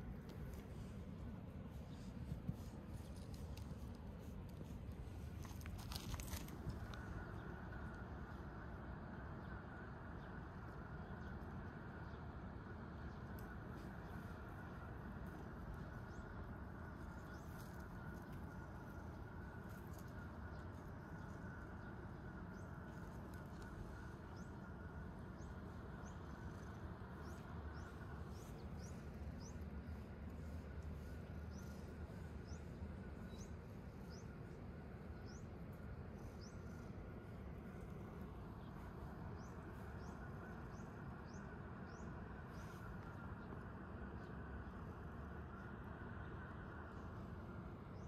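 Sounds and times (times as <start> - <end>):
low outdoor rumble: 0.0 - 48.0
small birds chirping: 15.7 - 37.4.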